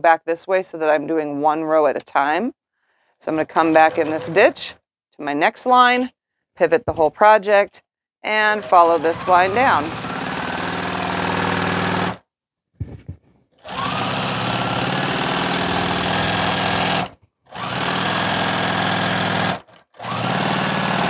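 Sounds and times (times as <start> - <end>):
sewing machine stitching: 3.3 - 4.8, 8.3 - 12.2, 13.6 - 21.0.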